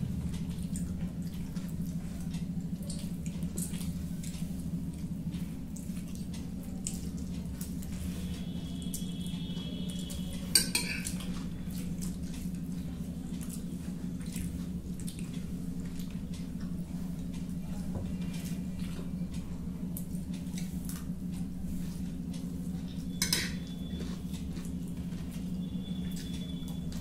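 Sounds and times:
cutlery clicking on glass plates: 0:10.6 - 0:11.2, 0:23.2 - 0:23.6.

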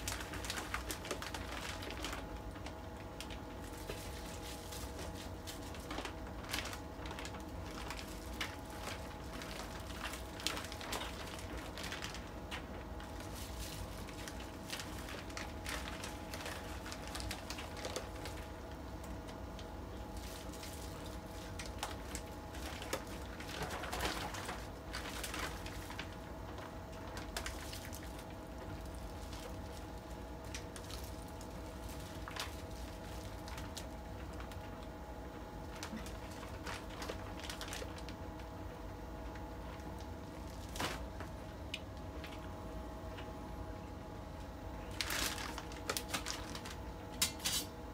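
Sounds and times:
wet cabbage squishing: 0:00.0 - 0:34.9
plastic bag crinkling: 0:00.0 - 0:43.3, 0:44.4 - 0:47.8
faint steady hum: 0:00.0 - 0:47.9.

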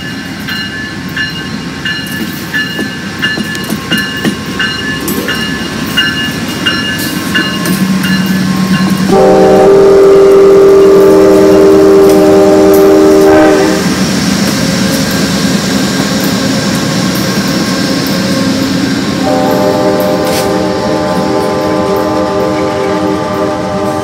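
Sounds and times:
train engines passing: 0:00.0 - 0:24.0
locomotive air horn chord: 0:09.1 - 0:13.9, 0:19.2 - 0:24.0.

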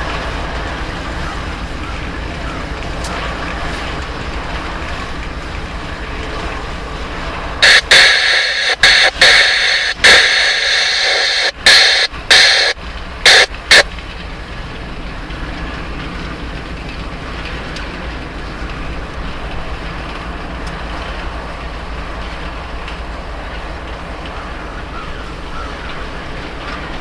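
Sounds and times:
freight train rumbling past: 0:00.0 - 0:27.0
loud bursts of noise: 0:06.9 - 0:13.9.

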